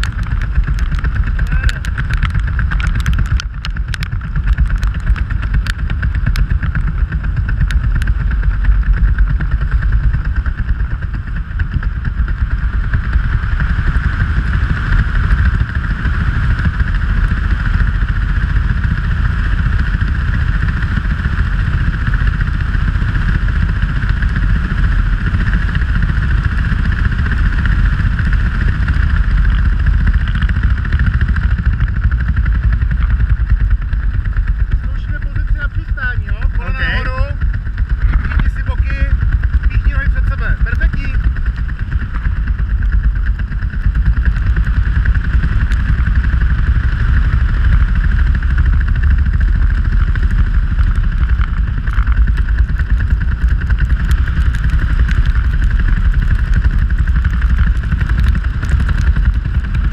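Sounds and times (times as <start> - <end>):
sharp ticks: 0.0 - 10.6, 25.6 - 59.9
wind rumbling on microphone: 0.0 - 59.9.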